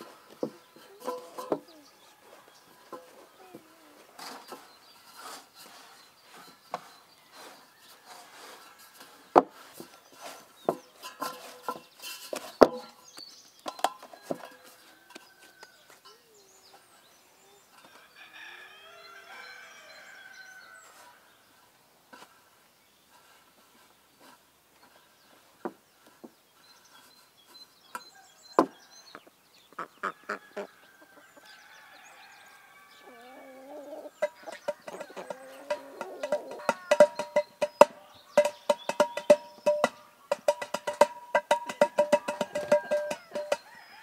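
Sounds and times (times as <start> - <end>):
chickens clucking: 0.0 - 13.0, 28.0 - 44.0
sharp knocks: 34.2 - 43.7
music with fast percussive beat: 36.3 - 43.7.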